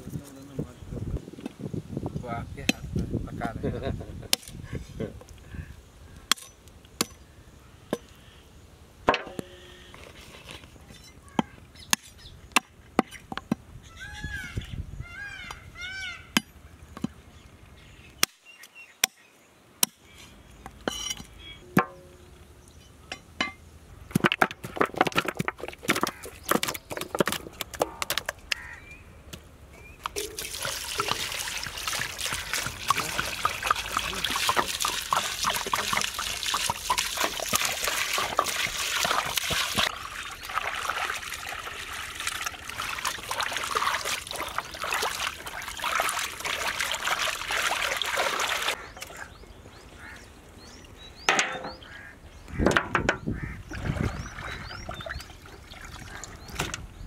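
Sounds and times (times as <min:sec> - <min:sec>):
water pouring into metal pot: 0:30.2 - 0:48.8.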